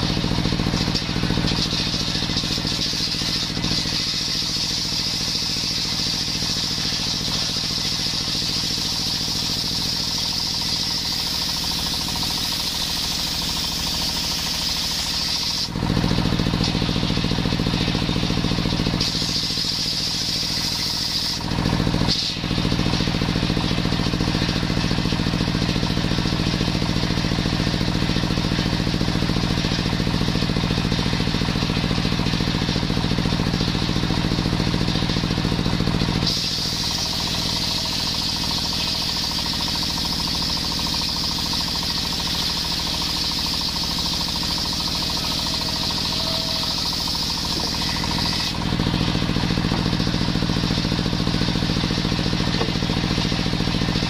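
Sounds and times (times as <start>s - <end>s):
saw blade hissing: 0.0s - 21.4s, 36.2s - 41.5s, 42.4s - 54.0s
table saw engine running: 0.0s - 54.0s.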